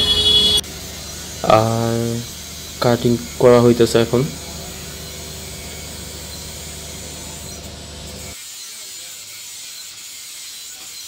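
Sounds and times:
low motor hum: 0.0 - 8.4
angle grinder cutting metal: 0.0 - 11.0.

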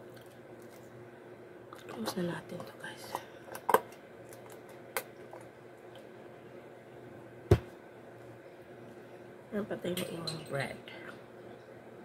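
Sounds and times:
loud thump: 7.5 - 7.7.

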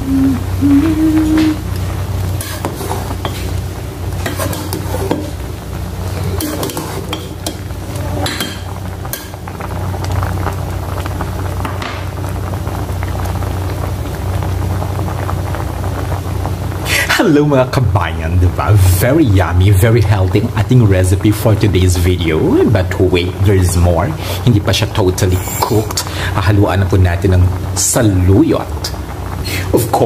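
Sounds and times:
low hum: 0.0 - 23.9
stew boiling: 0.0 - 30.0.

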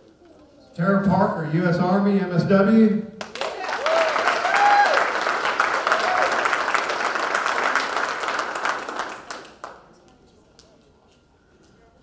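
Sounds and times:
audience applauding: 3.2 - 10.0
voices cheering: 3.4 - 8.0.

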